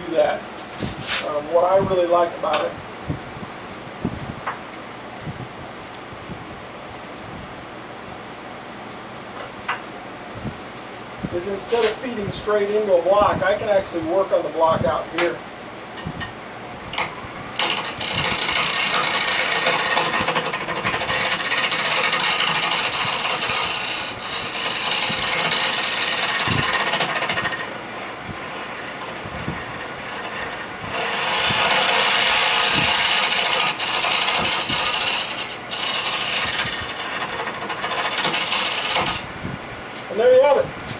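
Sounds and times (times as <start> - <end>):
lathe tool scraping wood: 17.0 - 39.3.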